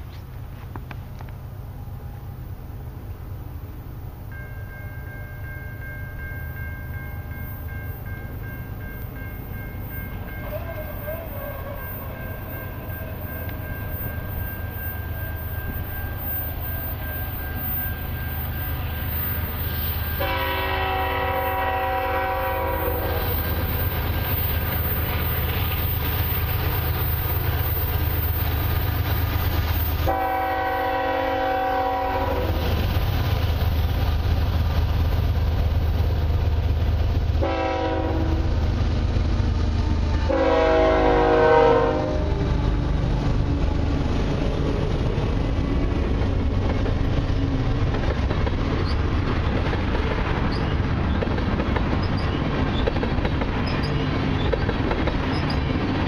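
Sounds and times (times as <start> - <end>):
diesel locomotive engines rumbling: 0.0 - 56.0
train air horn blasts: 20.2 - 23.3, 30.0 - 32.7, 37.4 - 38.6, 39.8 - 42.4.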